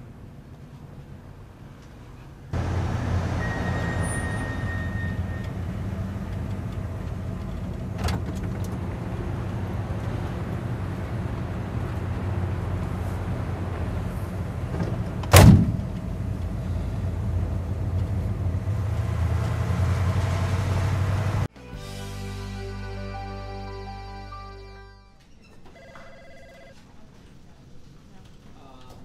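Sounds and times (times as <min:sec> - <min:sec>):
van engine idling hum: 0:02.6 - 0:24.9
sliding van door slamming: 0:12.3 - 0:16.0.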